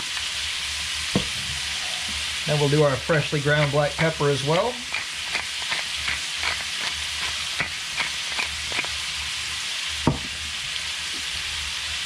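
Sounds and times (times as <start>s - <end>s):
meat sizzling in a skillet: 0.0s - 12.0s
pepper mill clicking: 4.8s - 9.0s.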